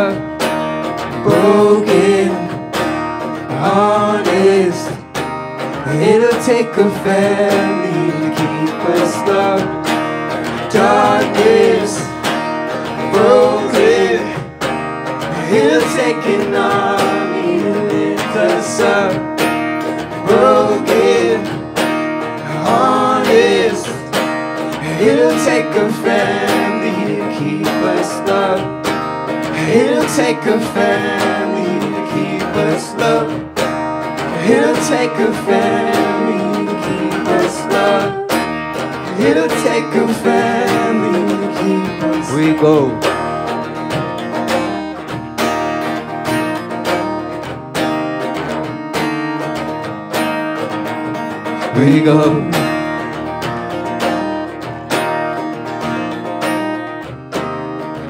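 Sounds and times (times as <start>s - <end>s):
person singing: 0.0s - 0.3s, 1.1s - 33.6s, 34.2s - 43.2s, 51.6s - 53.1s
strummed acoustic guitar: 0.0s - 58.0s.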